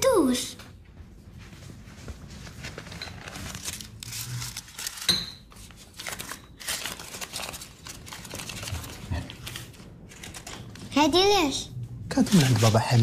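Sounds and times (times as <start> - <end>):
banknote crinkling: 2.5 - 10.9.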